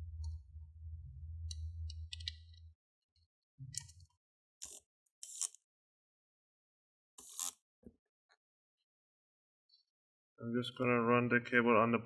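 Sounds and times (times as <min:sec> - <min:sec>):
low hum: 0:00.0 - 0:02.7.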